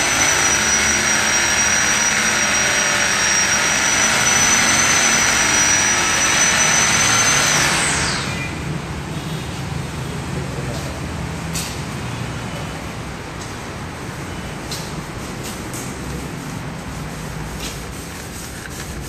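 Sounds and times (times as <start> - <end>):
motor spinning down: 0.0 - 8.5
electric polisher whining: 0.0 - 8.6.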